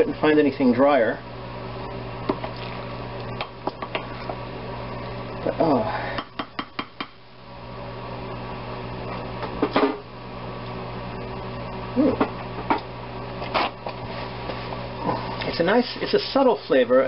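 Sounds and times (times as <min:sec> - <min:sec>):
electric appliance hum: 0:00.0 - 0:17.0
person making short vocal sounds: 0:11.9 - 0:12.3.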